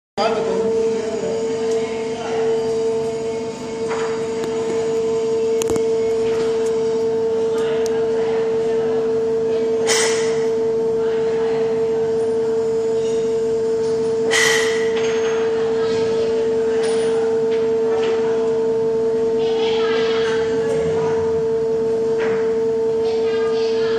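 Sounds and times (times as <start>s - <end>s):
testing machine humming: 0.2s - 23.9s.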